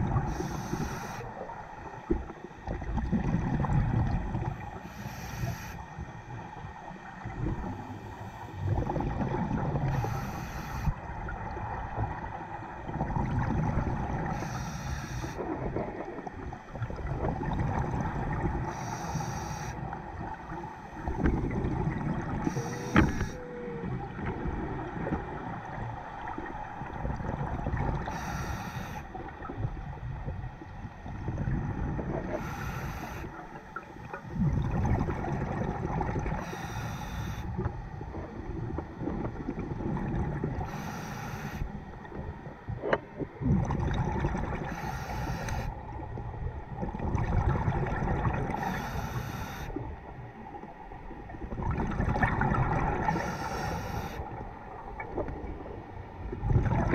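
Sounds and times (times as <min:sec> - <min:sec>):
regulator breath hiss: 0:00.3 - 0:01.3, 0:04.8 - 0:05.8, 0:09.9 - 0:11.0, 0:14.3 - 0:15.4, 0:18.7 - 0:19.8, 0:22.5 - 0:23.4, 0:28.1 - 0:29.1, 0:32.4 - 0:33.3, 0:36.4 - 0:37.5, 0:40.6 - 0:41.7, 0:44.7 - 0:45.7, 0:48.6 - 0:49.8, 0:53.1 - 0:54.2
low bubbling rumble: 0:02.0 - 0:04.7, 0:06.7 - 0:09.9, 0:11.1 - 0:14.2, 0:15.4 - 0:18.7, 0:21.0 - 0:22.5, 0:34.2 - 0:36.4, 0:37.6 - 0:40.6, 0:41.9 - 0:44.7, 0:45.8 - 0:48.6, 0:50.7 - 0:53.2, 0:54.2 - 0:56.9.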